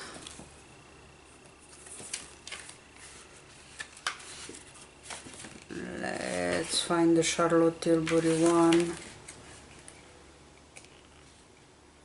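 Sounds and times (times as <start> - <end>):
faint high whine: 0.0 - 12.0
paper rustling: 1.6 - 7.0, 7.9 - 10.0.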